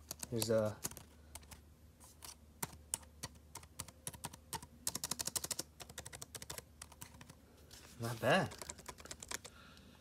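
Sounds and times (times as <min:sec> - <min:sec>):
typing on keyboard: 0:00.0 - 0:01.6, 0:02.2 - 0:07.4, 0:08.4 - 0:09.5.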